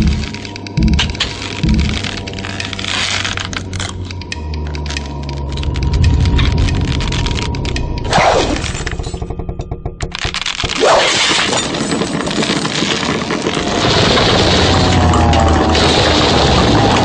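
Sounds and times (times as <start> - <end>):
rock cracking and crumbling: 10.0 - 17.0
small rock impacts: 10.2 - 17.0.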